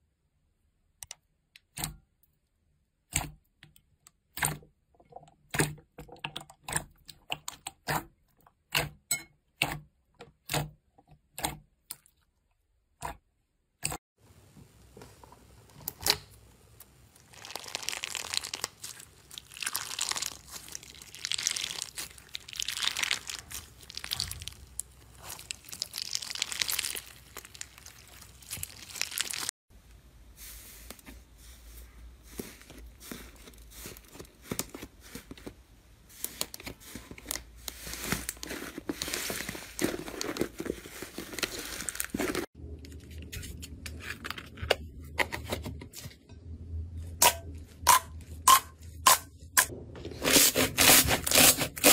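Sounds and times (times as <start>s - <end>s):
slime crackling when squeezed: 17.2s - 29.5s.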